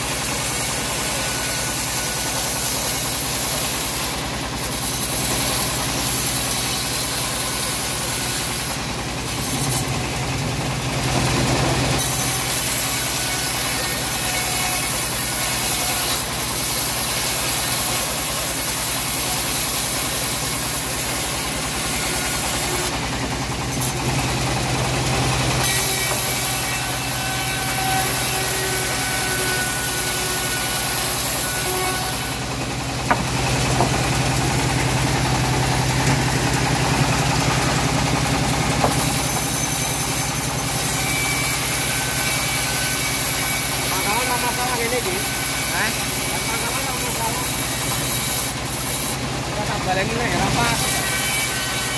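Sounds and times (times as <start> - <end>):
bandsaw mill cutting wood: 0.0 - 51.9.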